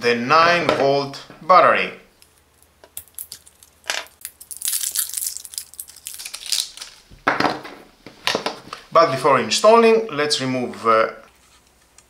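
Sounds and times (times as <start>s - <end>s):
dry crinkling and scraping: 2.2s - 7.2s.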